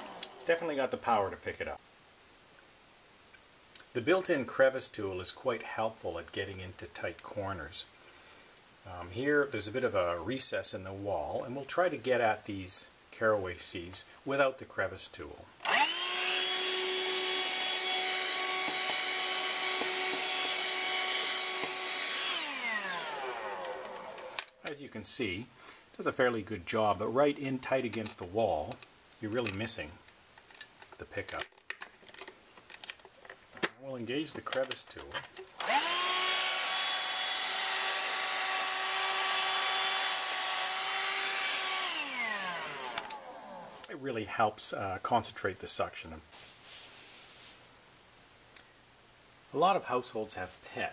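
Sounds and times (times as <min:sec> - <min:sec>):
hand vacuum whining: 0:00.0 - 0:00.4, 0:15.6 - 0:24.5, 0:35.6 - 0:43.9.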